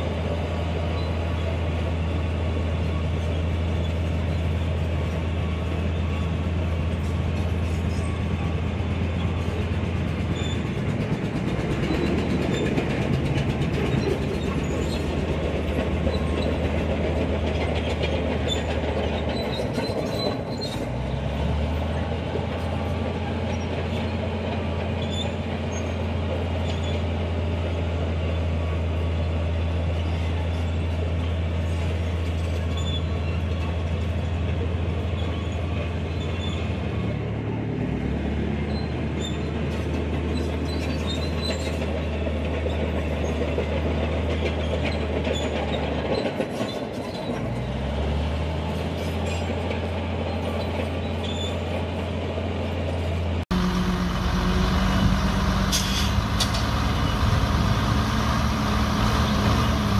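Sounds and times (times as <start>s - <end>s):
bulldozer diesel engine running: 0.0s - 59.9s
steel tracks clanking: 0.0s - 59.9s.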